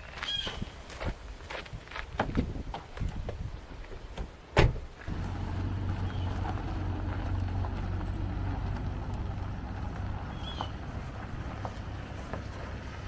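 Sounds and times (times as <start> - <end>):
car door slamming: 4.6 - 6.6
car engine humming: 5.0 - 13.0.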